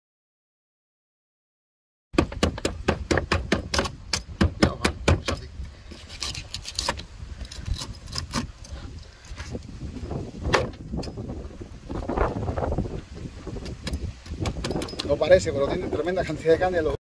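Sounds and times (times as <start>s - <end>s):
knife crunching through fish plates: 5.3s - 8.8s.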